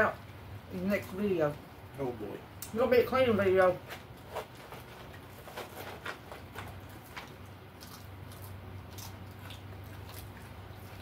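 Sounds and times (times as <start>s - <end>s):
steady low hum: 0.0s - 11.0s
people chewing chicken: 4.3s - 11.0s.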